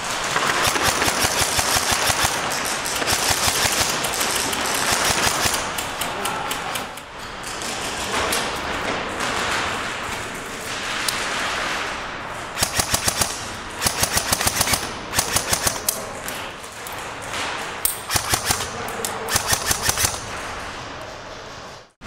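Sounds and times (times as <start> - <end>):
airsoft guns firing bursts: 0.0 - 6.0, 10.8 - 16.0, 18.0 - 20.6.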